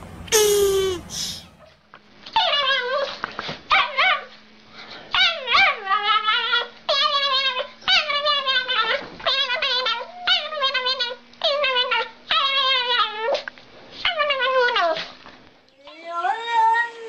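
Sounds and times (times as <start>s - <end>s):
small dog whining: 2.4s - 4.3s, 5.1s - 15.1s, 15.8s - 17.0s.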